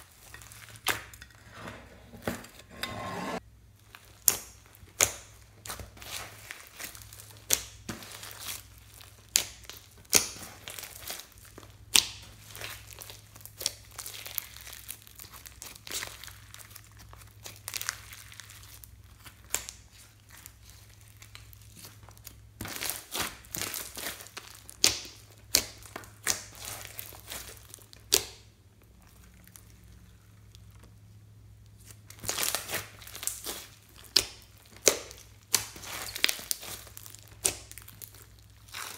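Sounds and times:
slime squishing and crinkling: 0:00.0 - 0:01.2, 0:03.8 - 0:38.9
slime popping and snapping: 0:32.1 - 0:38.9.

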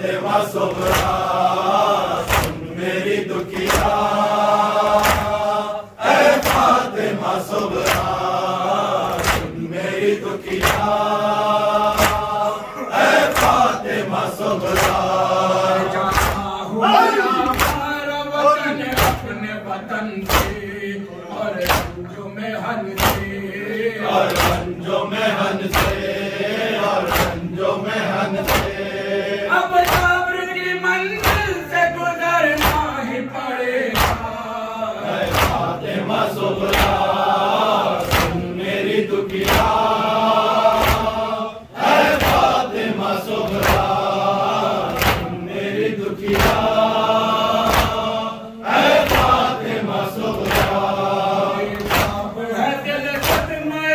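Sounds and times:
men chanting in unison: 0:00.0 - 0:53.9
hands slapping on chests: 0:00.7 - 0:01.4, 0:02.1 - 0:02.7, 0:03.4 - 0:04.2, 0:04.8 - 0:08.3, 0:09.0 - 0:09.7, 0:10.4 - 0:11.1, 0:11.8 - 0:12.5, 0:13.1 - 0:15.2, 0:15.8 - 0:16.5, 0:17.4 - 0:18.0, 0:18.9 - 0:19.3, 0:20.2 - 0:20.6, 0:21.6 - 0:22.0, 0:23.0 - 0:23.3, 0:24.2 - 0:24.7, 0:25.6 - 0:26.1, 0:27.0 - 0:27.5, 0:28.4 - 0:28.8, 0:29.8 - 0:30.2, 0:31.2 - 0:31.6, 0:32.6 - 0:32.9, 0:33.9 - 0:34.4, 0:35.2 - 0:35.8, 0:36.6 - 0:37.2, 0:37.9 - 0:38.5, 0:39.3 - 0:40.0, 0:40.7 - 0:41.2, 0:42.0 - 0:42.7, 0:43.4 - 0:44.1, 0:44.8 - 0:45.4, 0:46.2 - 0:46.9, 0:47.6 - 0:48.1, 0:48.8 - 0:51.0, 0:51.6 - 0:52.3, 0:53.2 - 0:53.6.

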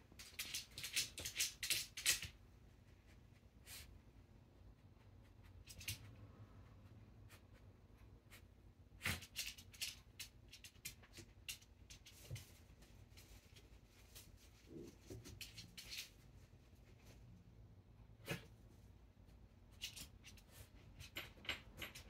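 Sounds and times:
dog claws clicking on floor: 0:00.1 - 0:02.4, 0:05.6 - 0:06.1, 0:09.0 - 0:12.6, 0:19.7 - 0:22.0.

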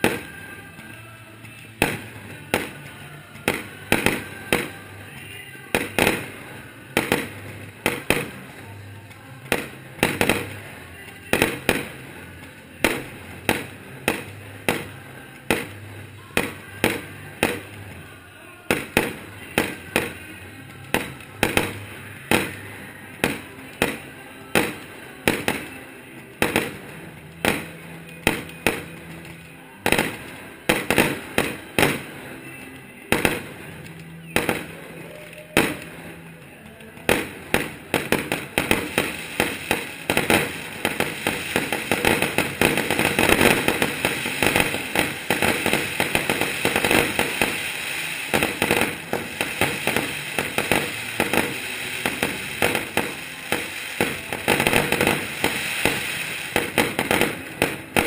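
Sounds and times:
firework shells bursting: 0:37.1 - 0:58.0.

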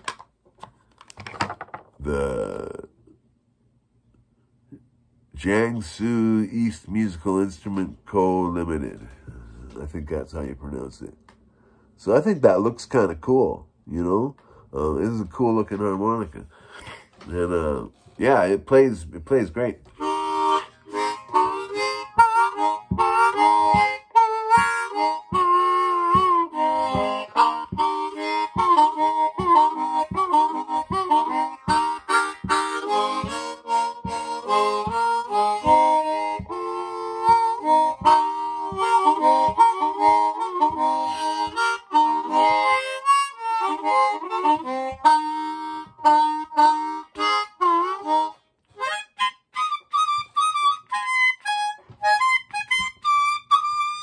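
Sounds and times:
harmonica playing: 0:16.0 - 0:54.0.

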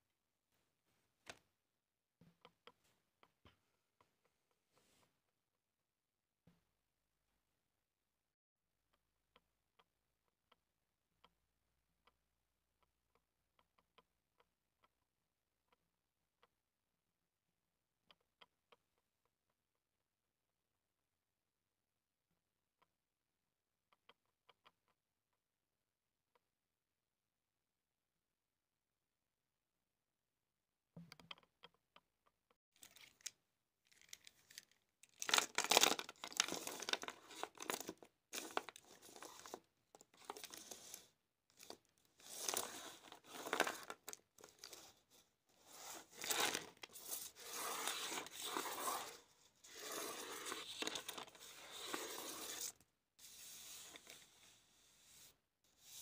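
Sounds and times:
paper rustling and crinkling: 0:33.9 - 0:40.9, 0:41.6 - 0:45.0, 0:45.7 - 0:52.7.

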